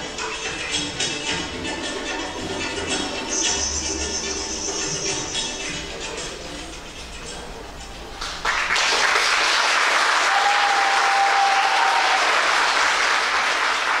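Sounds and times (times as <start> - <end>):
dance music: 0.0 - 8.1
steady tone: 0.0 - 8.1
audience applause: 8.2 - 14.0.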